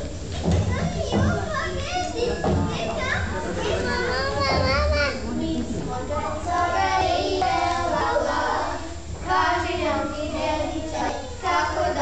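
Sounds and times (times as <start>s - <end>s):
children singing: 6.2s - 12.0s.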